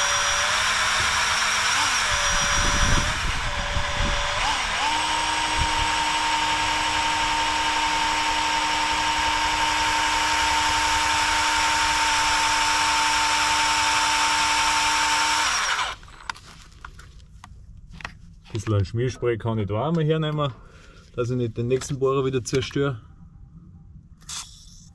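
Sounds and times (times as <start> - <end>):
power tool whining on metal: 0.0 - 16.3.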